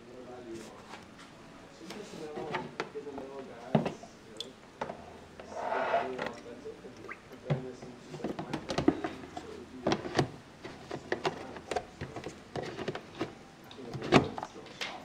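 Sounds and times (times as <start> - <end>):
plastic boxes knocking and clicking: 7.5 - 14.6.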